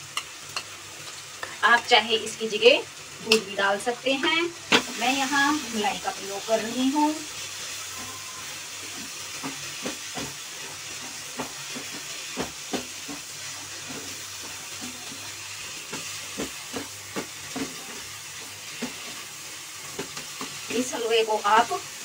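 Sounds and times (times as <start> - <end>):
food sizzling in a pan: 0.0 - 22.0.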